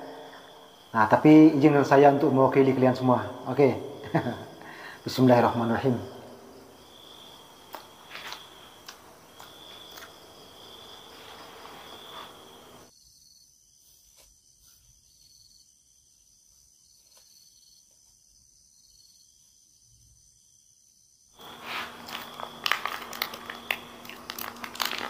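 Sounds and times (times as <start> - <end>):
night insects chirping: 0.0 - 25.0
crunchy snack eating clicks: 21.4 - 25.0.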